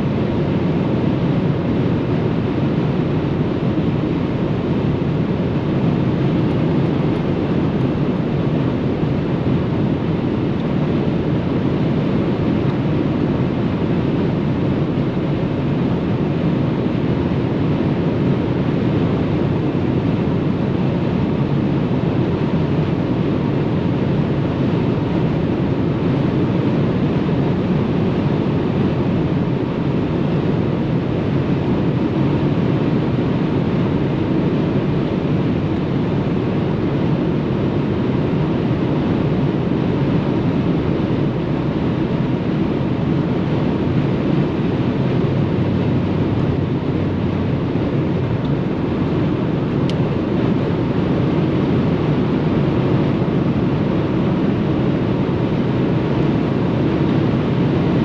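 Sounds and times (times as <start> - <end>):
car engine drone: 38.6 - 52.5.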